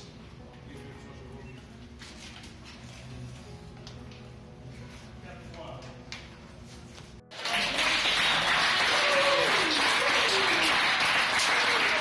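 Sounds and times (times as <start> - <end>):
people clapping: 7.3 - 12.0
voices cheering: 8.6 - 12.0.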